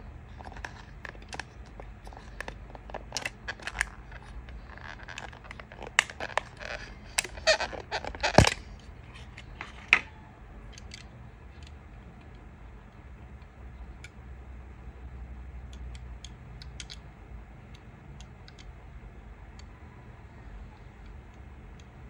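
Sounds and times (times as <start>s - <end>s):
plastic packaging crackling: 0.3s - 10.1s.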